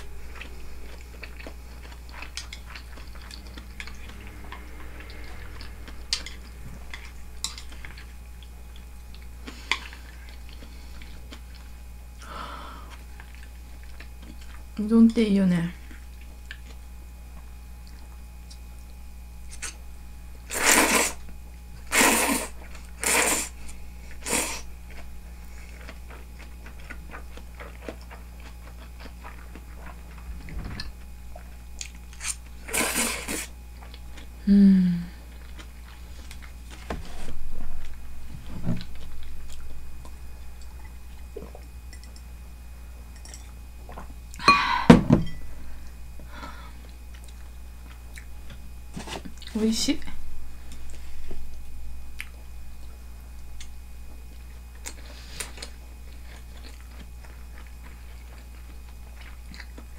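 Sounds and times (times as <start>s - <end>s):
quiet chewing: 0.0s - 14.8s, 15.8s - 19.8s, 22.5s - 34.4s, 35.1s - 44.4s, 45.8s - 49.6s, 50.6s - 59.9s
person slurping noodles: 20.5s - 21.2s, 21.9s - 23.5s, 24.2s - 24.6s, 32.2s - 33.5s.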